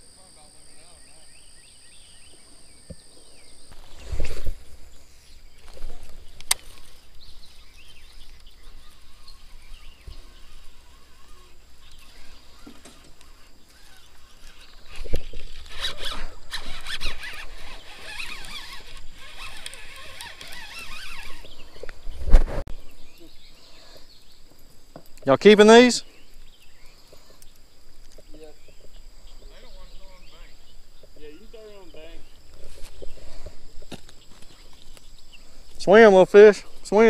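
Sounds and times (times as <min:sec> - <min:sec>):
fishing reel whirring: 0:08.3 - 0:21.6.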